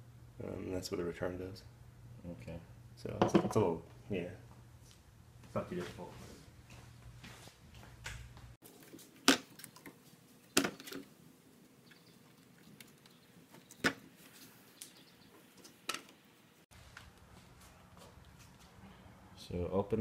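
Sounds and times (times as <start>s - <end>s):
low steady hum: 0.0s - 5.8s.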